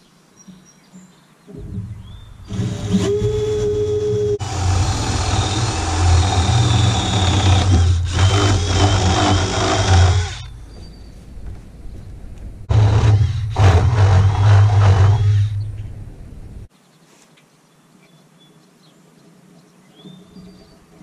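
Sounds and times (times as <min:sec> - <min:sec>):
cordless drill boring wood: 0:02.5 - 0:10.5, 0:12.7 - 0:15.6.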